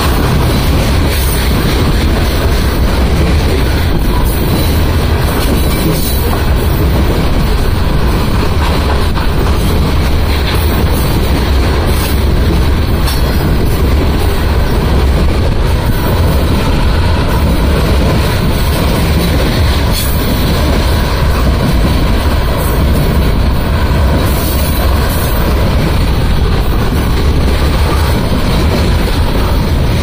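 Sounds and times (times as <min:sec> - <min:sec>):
train wheels rumbling on rail: 0:00.0 - 0:30.0
wheels clicking over rail joints: 0:00.0 - 0:30.0.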